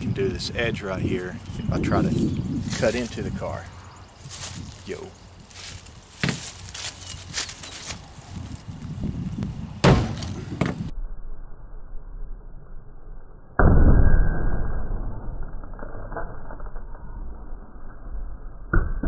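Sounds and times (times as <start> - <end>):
loud dull impact: 9.8 - 10.9.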